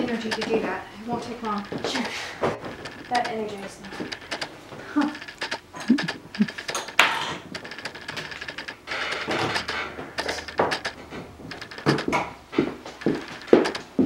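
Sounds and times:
tools clattering on workbench: 5.1 - 12.3.

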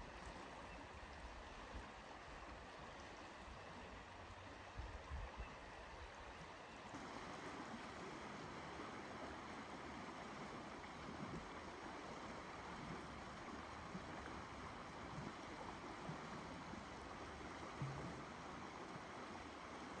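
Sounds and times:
river water rushing: 5.8 - 20.0.

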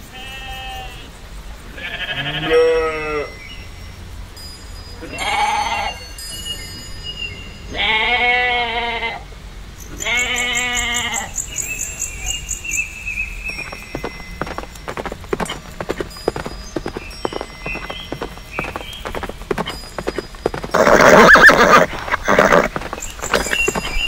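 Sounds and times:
sheep bleating: 7.7 - 9.2
horse hooves clip-clopping: 11.6 - 24.0.

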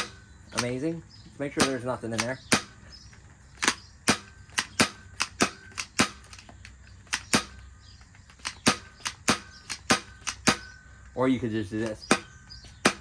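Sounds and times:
toy blaster plastic clicks: 0.5 - 0.8, 1.6 - 2.7, 3.6 - 7.6, 8.2 - 10.7.

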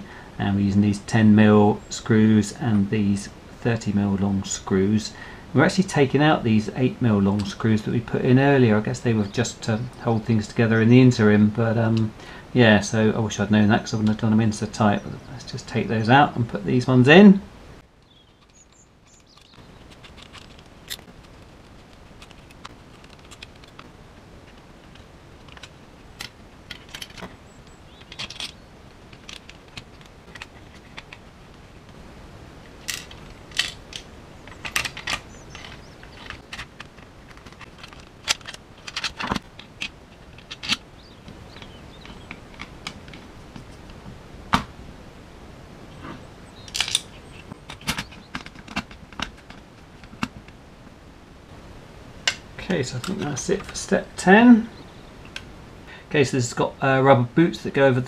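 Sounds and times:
screws and parts clattering: 18.2 - 23.9, 24.5 - 31.2, 32.8 - 40.8, 46.7 - 50.4.

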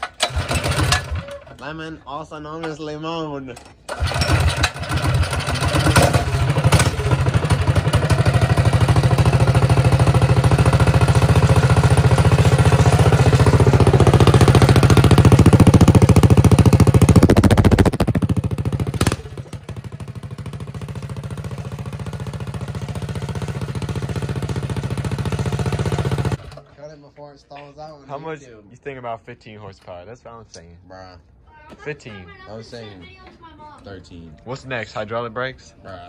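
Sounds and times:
mini bike engine running: 0.0 - 1.5, 3.9 - 26.6.

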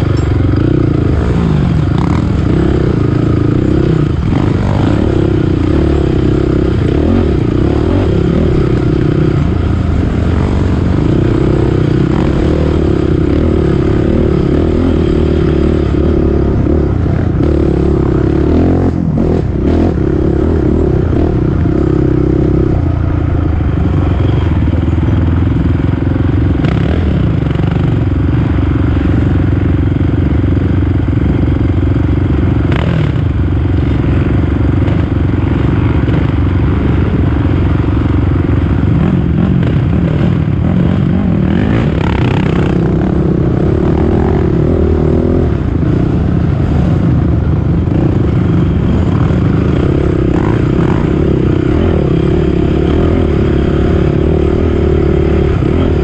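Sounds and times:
atv engine running hard: 0.0 - 56.0.

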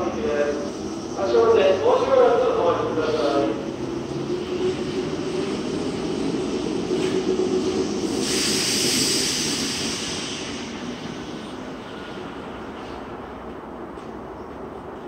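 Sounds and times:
subway train equipment humming: 0.0 - 15.0
burst of hiss: 8.0 - 11.7.

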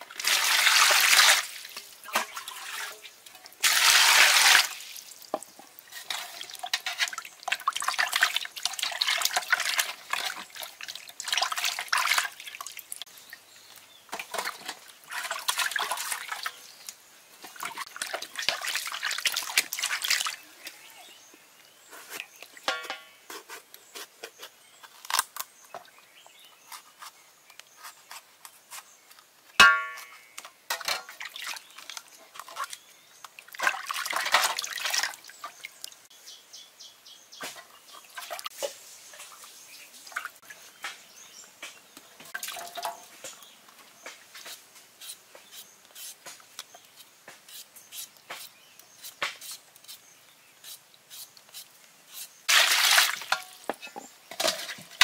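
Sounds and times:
water splashing: 0.1 - 5.4, 33.4 - 35.9, 52.5 - 53.7
ringing knock on metal basin: 29.6 - 30.1.

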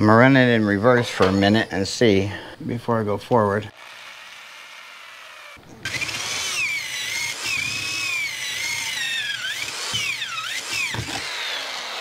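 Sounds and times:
electric drill whining: 3.7 - 12.0.

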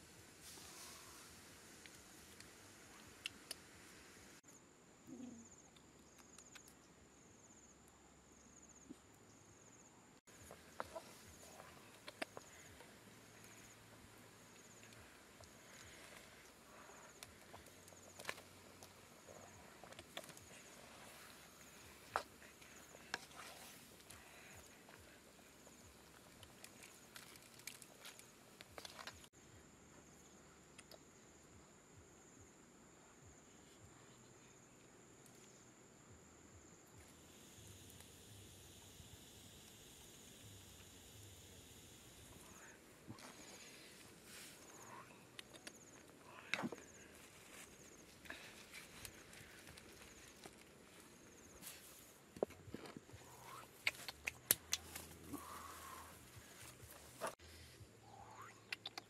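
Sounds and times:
insect chirping: 0.0 - 59.0
wood fire pops and crackles: 10.3 - 29.4, 45.3 - 57.4.

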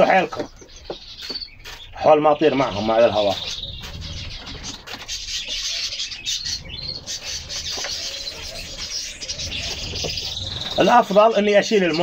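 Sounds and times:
bird chirps: 0.0 - 12.0
pigeon coos: 3.3 - 10.9.

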